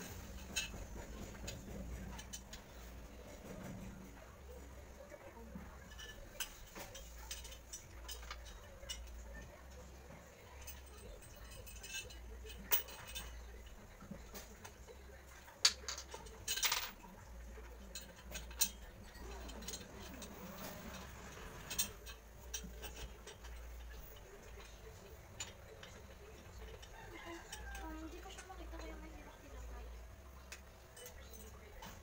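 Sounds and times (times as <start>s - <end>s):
metal table legs clinking: 5.7s - 9.8s, 10.4s - 14.7s, 15.4s - 29.0s, 30.4s - 32.0s.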